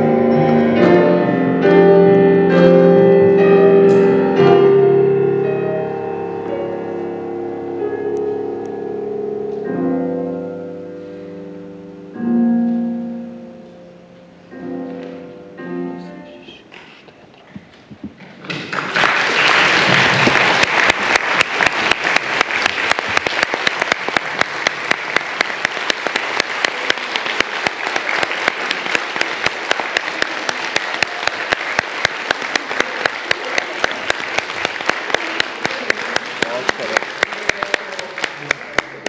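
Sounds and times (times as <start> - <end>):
audience applauding: 18.2 - 39.0.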